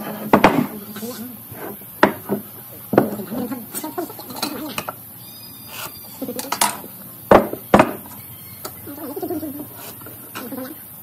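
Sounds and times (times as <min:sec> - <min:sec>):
steel and wood knocking on workbench: 0:06.6 - 0:08.0.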